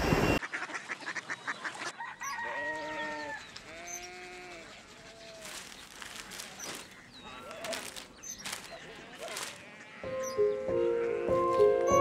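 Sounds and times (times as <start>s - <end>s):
roosters crowing: 1.9s - 10.3s
newspaper pages rustling: 5.4s - 9.8s.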